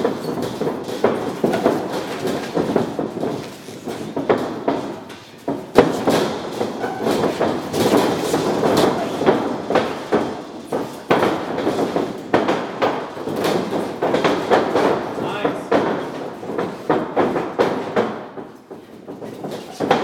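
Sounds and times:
boxing gloves thudding: 0.0 - 20.0.

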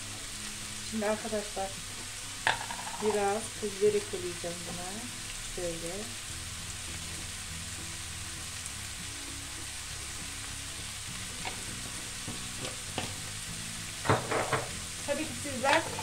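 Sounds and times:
leeks sizzling in a frying pan: 0.0 - 16.0
knocks: 14.0 - 14.8.

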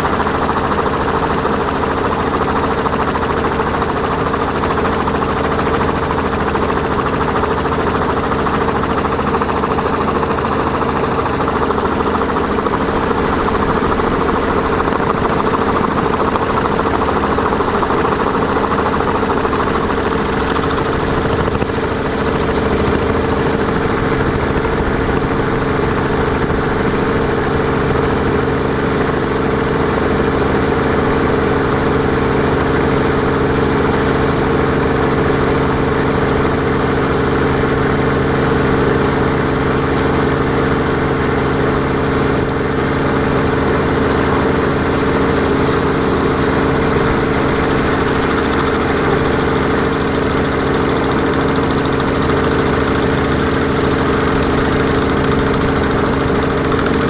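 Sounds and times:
drone motors humming: 44.4 - 57.0.

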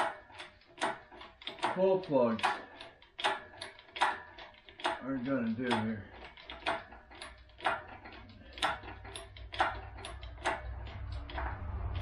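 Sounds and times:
hoist pump handle clicking: 0.0 - 12.0
low hum: 9.2 - 12.0.

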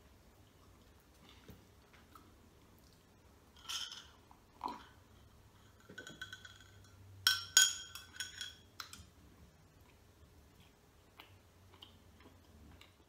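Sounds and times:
metal spoon clinking in a glass: 5.7 - 9.0.

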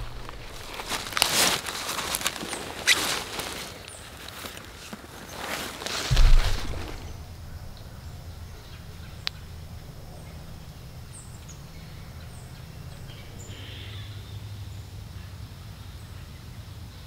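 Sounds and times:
low steady rumble: 0.0 - 1.6, 6.1 - 15.4.

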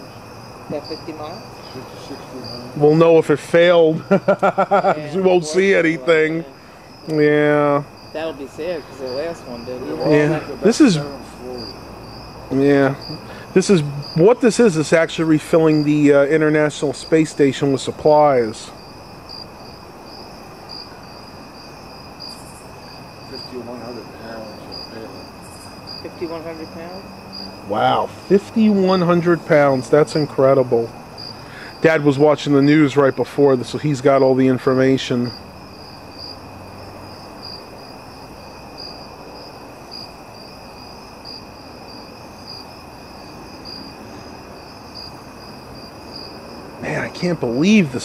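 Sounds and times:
high pulsing buzz: 0.0 - 38.2
insects trilling: 0.0 - 48.0
faint voice: 4.7 - 11.6.

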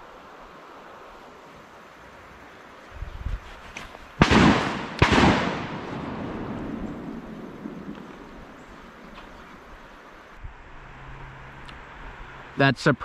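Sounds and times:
shotgun blasts echoing: 4.2 - 7.8.

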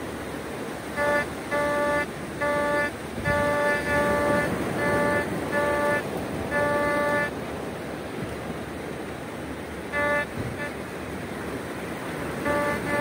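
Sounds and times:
surf hissing: 0.0 - 13.0
metal detector beeps: 1.0 - 7.3, 10.0 - 10.7, 12.5 - 13.0.

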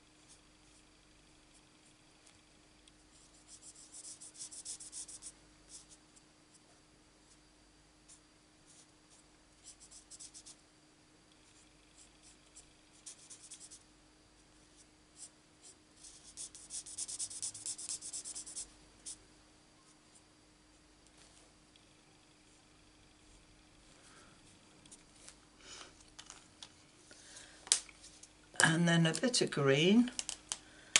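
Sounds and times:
marker nib scratching on cardstock: 3.4 - 5.9, 15.6 - 19.2.

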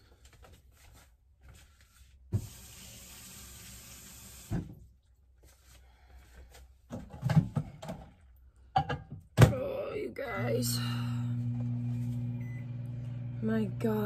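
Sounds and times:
kitchen tap running: 2.3 - 4.7.

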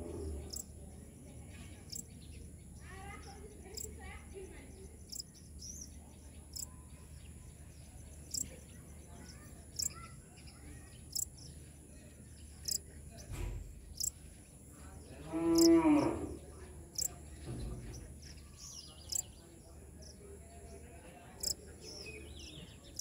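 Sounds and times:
long pitched animal call: 15.3 - 16.4.

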